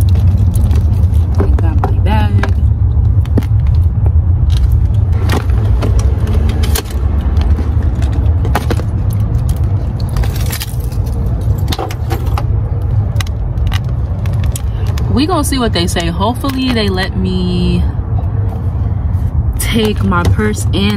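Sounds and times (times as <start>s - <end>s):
steady low rumble: 0.0s - 20.9s
bag and keys rattling: 3.5s - 15.0s.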